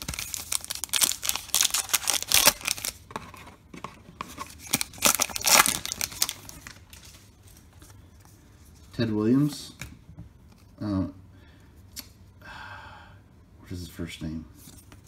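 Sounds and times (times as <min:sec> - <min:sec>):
wrapper tearing and crinkling: 0:00.0 - 0:03.0, 0:04.5 - 0:07.3.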